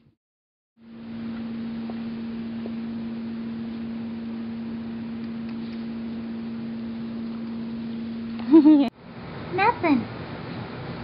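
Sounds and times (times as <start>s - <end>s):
steady mechanical hum: 0.8s - 11.0s.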